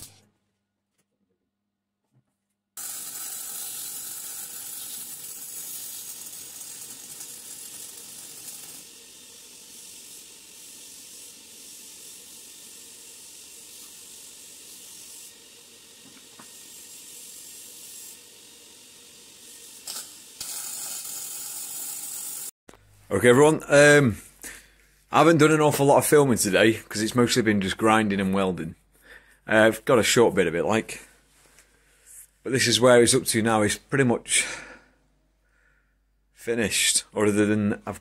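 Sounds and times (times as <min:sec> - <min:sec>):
welding arc hissing: 0:02.8 - 0:22.6.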